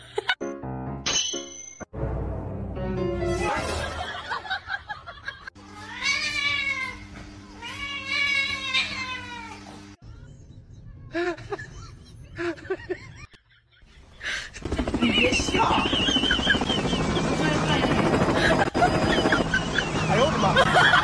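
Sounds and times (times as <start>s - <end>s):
cat meowing: 7.6s - 9.6s.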